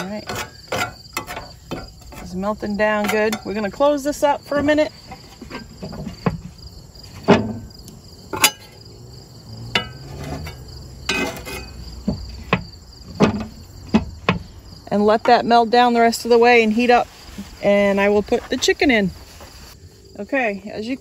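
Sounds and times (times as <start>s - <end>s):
metal spatula scraping skillet: 0.0s - 6.4s, 8.3s - 8.8s, 9.7s - 12.6s.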